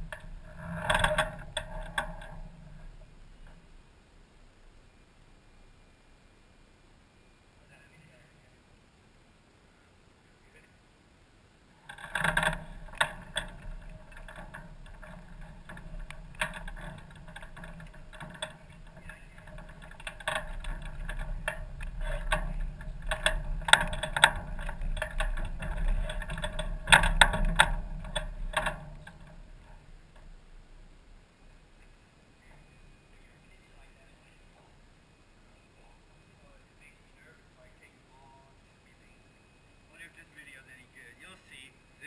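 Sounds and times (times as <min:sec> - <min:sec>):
airframe rattling and knocking: 0:00.0 - 0:03.8, 0:11.8 - 0:31.0
wheels rolling rumble: 0:00.0 - 0:07.0, 0:11.6 - 0:41.5.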